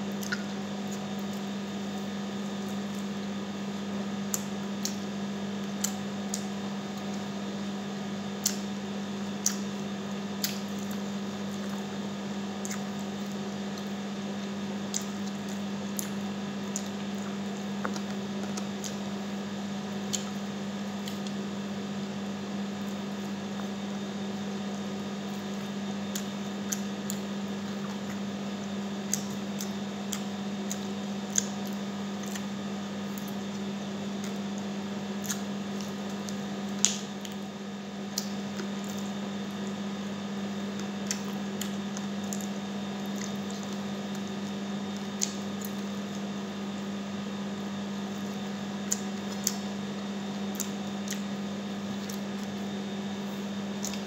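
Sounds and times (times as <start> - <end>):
steady low hum: 0.0 - 54.0
person chewing: 0.1 - 3.1, 9.3 - 9.8, 12.6 - 19.1, 20.0 - 21.4, 24.6 - 37.4, 38.1 - 46.2, 48.0 - 54.0
lip smacks and finger sucks: 0.2 - 0.6.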